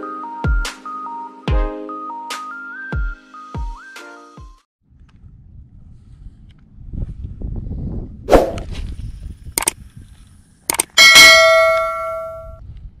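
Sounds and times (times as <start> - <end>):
low wind rumble: 4.9 - 13.0
mouse clicks: 10.7 - 11.0
notification bell ding: 11.0 - 12.6.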